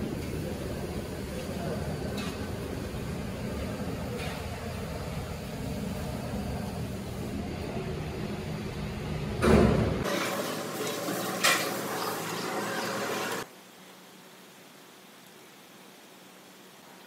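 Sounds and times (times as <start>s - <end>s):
heavy workshop machinery running: 0.0s - 13.5s.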